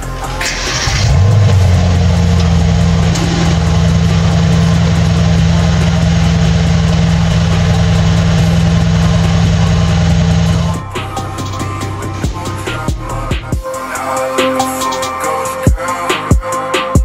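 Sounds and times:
car engine idling: 0.4s - 13.5s.

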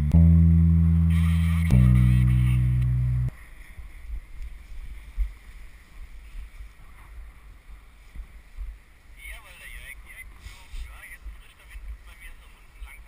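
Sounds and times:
loud held music chord: 0.0s - 3.3s.

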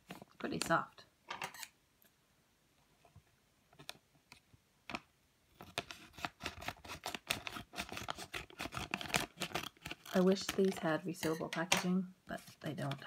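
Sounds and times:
plastic packaging crinkling: 5.6s - 11.3s.

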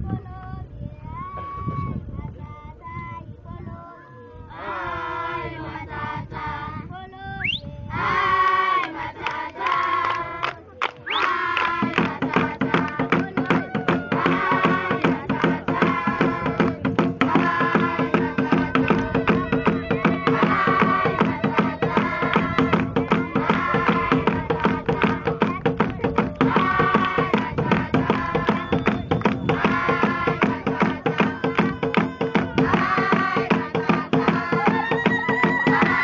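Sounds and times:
rhythmic hand clapping: 8.8s - 36.0s
children singing: 11.4s - 25.6s, 26.4s - 36.0s
beat: 11.6s - 36.0s.

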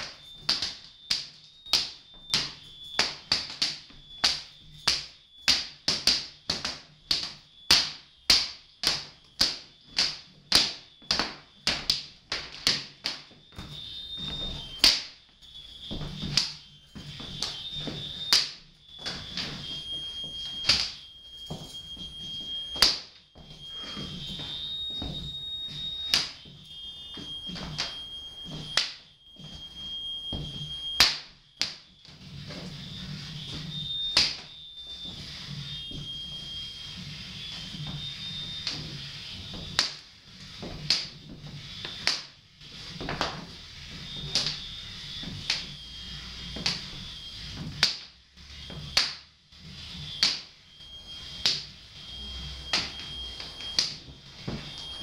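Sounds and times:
belts slapping against floor: 0.0s - 15.2s
belts slapping floor and walls: 0.0s - 55.0s
high-pitched electronic tone: 13.3s - 55.0s.

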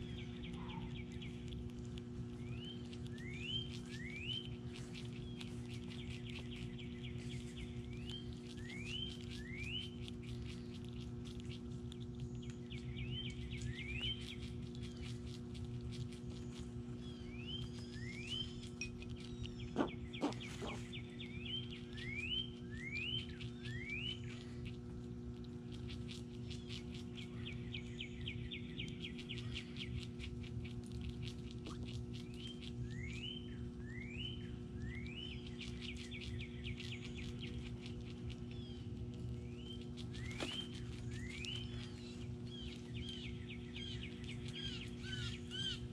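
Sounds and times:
bird chattering trills: 0.0s - 10.7s, 17.0s - 24.6s, 31.4s - 45.9s
steady low hum: 0.0s - 45.9s
songbirds whistling: 2.3s - 10.5s, 12.2s - 15.1s, 16.5s - 24.6s, 26.5s - 30.3s, 31.6s - 45.9s.

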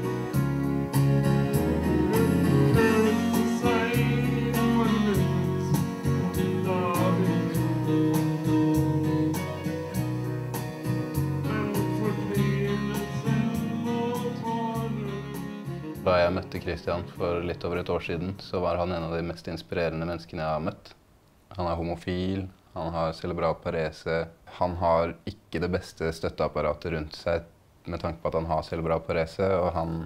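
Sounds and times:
keyboard backing music with beat: 0.0s - 17.2s
man singing into microphone: 1.8s - 5.8s, 6.4s - 7.9s, 11.4s - 15.4s.

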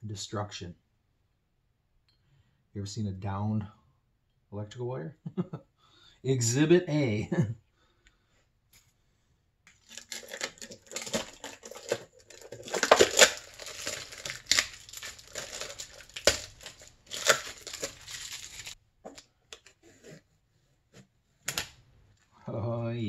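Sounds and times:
wrapping crinkling and rustling: 9.7s - 20.0s.

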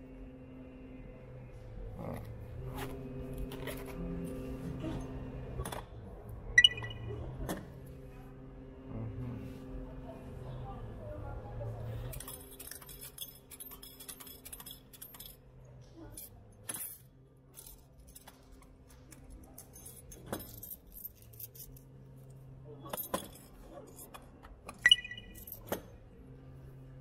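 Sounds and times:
steady low hum: 0.0s - 12.4s
small metallic clinks and jingles: 19.4s - 21.9s.

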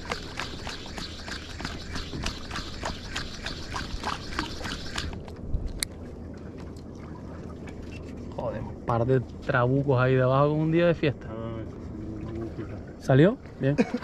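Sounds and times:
rapid sharp clicks: 0.0s - 5.2s
steady low hum: 0.0s - 14.0s.

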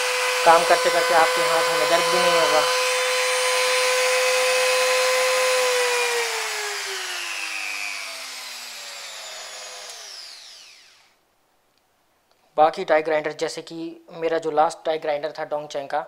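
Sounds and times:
die grinder motor whining: 0.0s - 11.2s.

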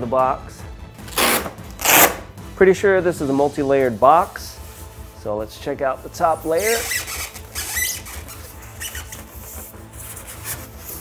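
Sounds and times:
background music with low beat: 0.0s - 11.0s
foam packing squeaking and rubbing: 6.4s - 11.0s.

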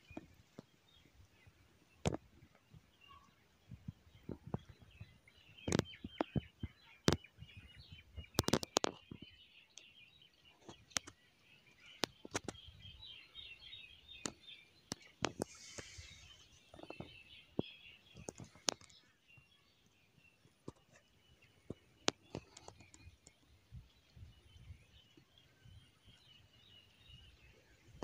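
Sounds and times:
birds chattering: 4.1s - 23.4s.

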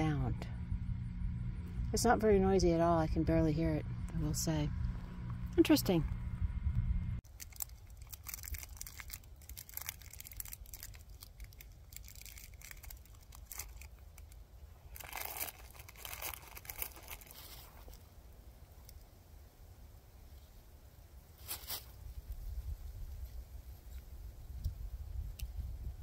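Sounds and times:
plastic wrapper crinkling: 7.2s - 18.1s.

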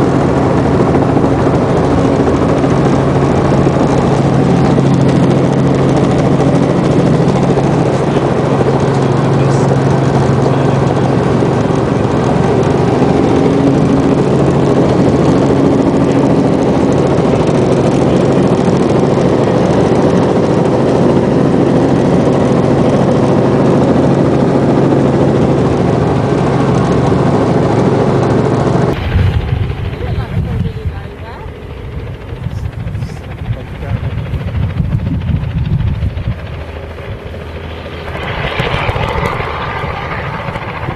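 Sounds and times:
helicopter engine and rotors: 0.0s - 40.9s
low hum: 23.4s - 40.9s.

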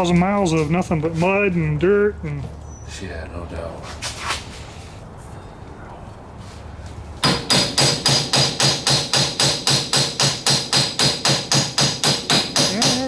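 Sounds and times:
hammer tapping metal hub: 7.2s - 13.0s.

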